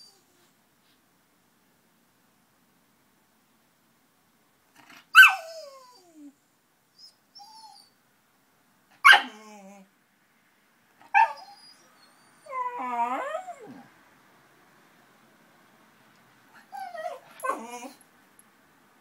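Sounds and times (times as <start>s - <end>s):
puppy wavering whine: 5.2s - 6.4s, 7.0s - 8.0s, 9.2s - 9.9s, 11.1s - 13.9s, 16.6s - 18.0s.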